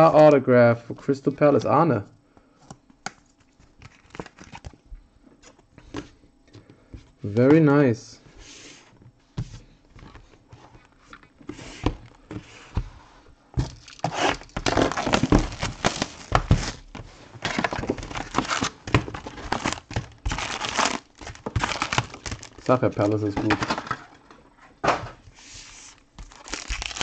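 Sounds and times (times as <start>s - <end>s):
foil packs crinkling: 13.6s - 24.0s, 25.6s - 27.0s.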